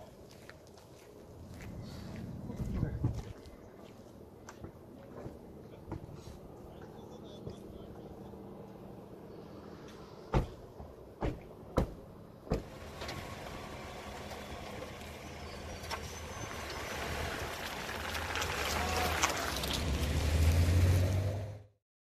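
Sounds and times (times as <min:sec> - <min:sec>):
car doors slamming: 0:10.3 - 0:14.8
car engine pulling away: 0:12.5 - 0:21.8.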